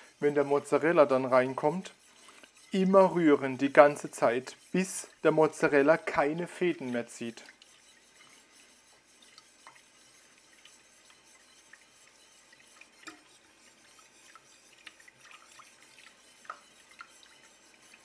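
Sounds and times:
whisk stirring sauce in pot: 0:00.0 - 0:18.0
whisk wires clicking on pot: 0:12.5 - 0:18.0.

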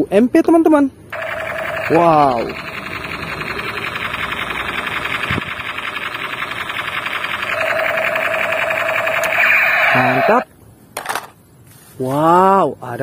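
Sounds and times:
steady electronic tone: 0:01.1 - 0:10.4
toy machine-gun rattle: 0:01.1 - 0:10.4.

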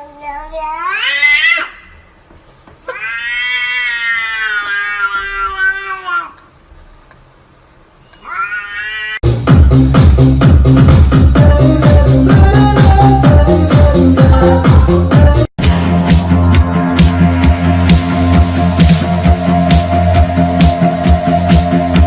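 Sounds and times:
cat yowling: 0:02.9 - 0:06.4, 0:08.1 - 0:09.2
electronic dance music: 0:09.2 - 0:22.0.

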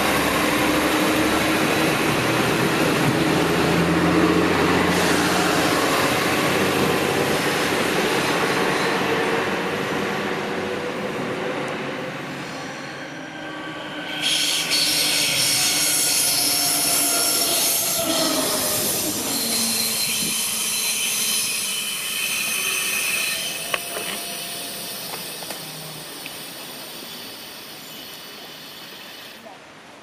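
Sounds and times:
diesel train engine drone: 0:00.0 - 0:29.9
high-pitched wheel squeal: 0:12.7 - 0:26.2.

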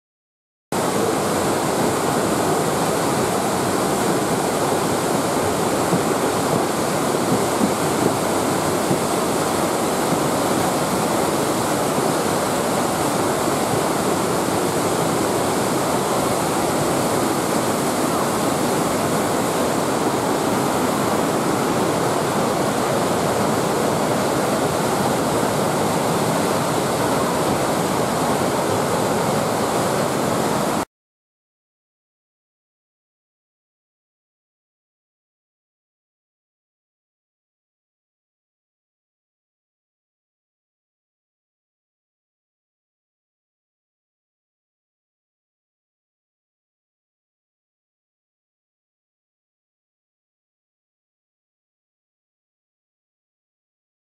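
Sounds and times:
waterfall rushing: 0:00.8 - 0:30.9.

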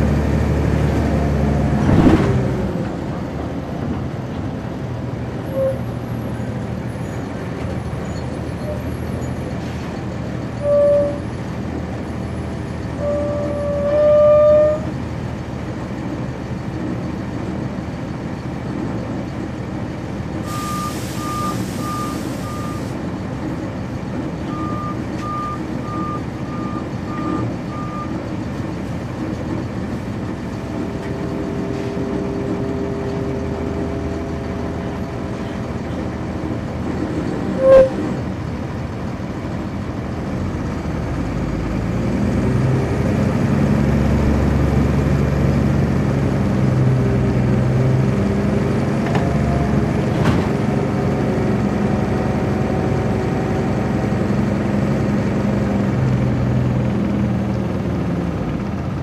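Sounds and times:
bus diesel engine running: 0:00.0 - 0:59.0
short loud tones: 0:37.6 - 0:38.1.

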